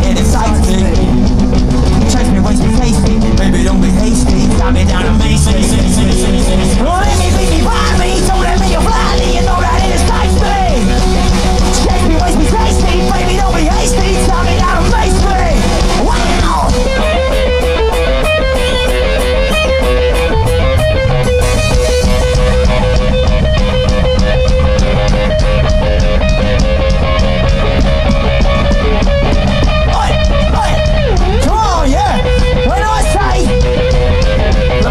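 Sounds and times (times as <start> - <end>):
punk rock band playing: 0.0 - 34.9
steady drum beat: 0.0 - 34.9
person shouting or singing: 3.4 - 17.4, 29.9 - 33.7.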